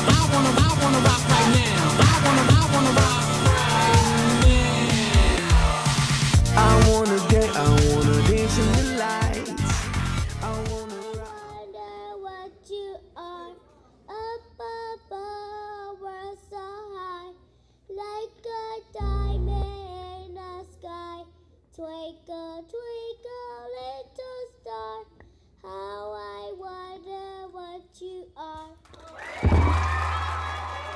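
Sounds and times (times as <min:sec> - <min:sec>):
girl singing into microphone: 0:11.0 - 0:28.8
low thump: 0:29.4 - 0:29.9.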